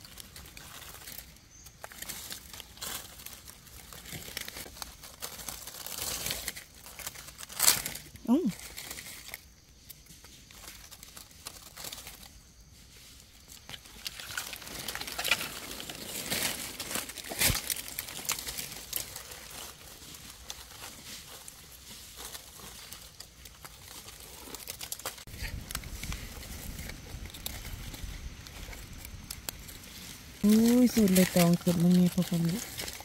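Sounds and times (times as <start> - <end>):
dry leaves rustling: 0.0 - 33.0.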